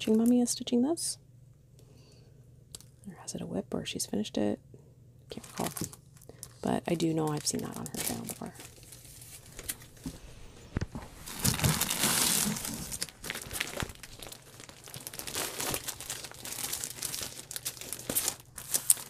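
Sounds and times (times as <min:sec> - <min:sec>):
plastic sleeves crinkling: 0:00.0 - 0:00.6, 0:05.3 - 0:19.0.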